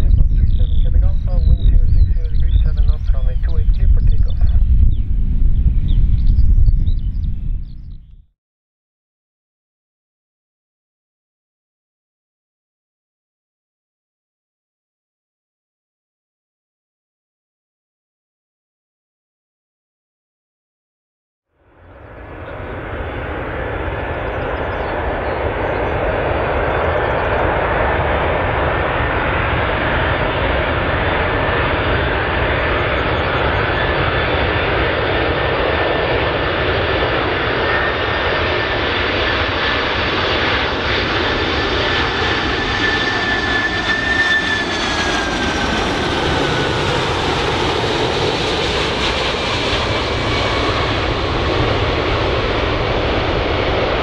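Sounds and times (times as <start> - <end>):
jet engines roaring: 0.0 - 8.0, 21.7 - 54.0
high jet engine whine: 0.0 - 8.2, 21.6 - 54.0.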